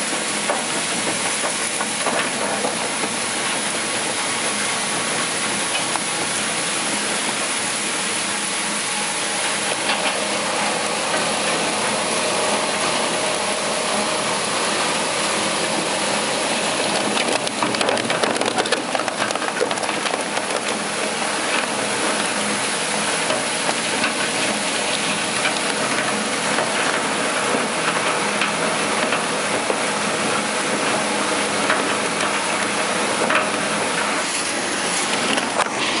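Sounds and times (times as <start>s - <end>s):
shredder crackling and rattling: 16.3s - 21.0s.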